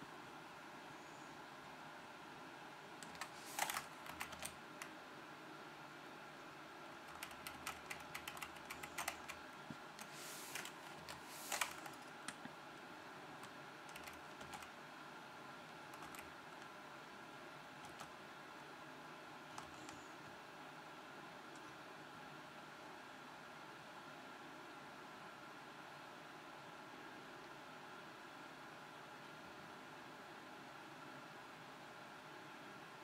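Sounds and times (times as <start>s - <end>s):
computer keyboard clicking: 3.0s - 4.9s, 7.1s - 9.4s, 10.0s - 12.5s, 13.4s - 14.7s, 15.9s - 16.7s, 17.8s - 18.2s, 19.5s - 20.1s.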